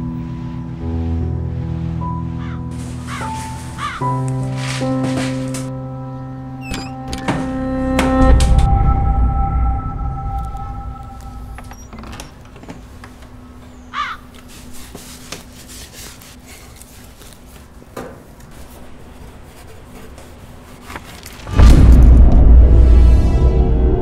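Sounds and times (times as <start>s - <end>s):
cloth wiping kitchen surfaces: 2.7s - 5.5s, 14.4s - 21.2s
short squeak: 6.6s - 7.1s, 11.4s - 12.4s.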